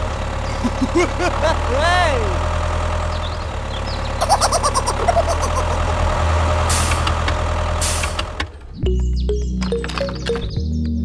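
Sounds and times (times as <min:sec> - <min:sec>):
vehicle engine idling: 0:00.0 - 0:09.2
air brake hiss: 0:06.7 - 0:07.1, 0:07.8 - 0:08.2
music: 0:08.8 - 0:11.0.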